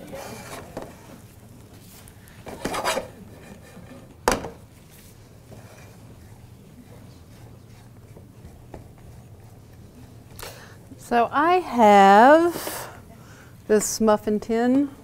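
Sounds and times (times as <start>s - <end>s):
spatula scraping skillet: 2.4s - 4.1s.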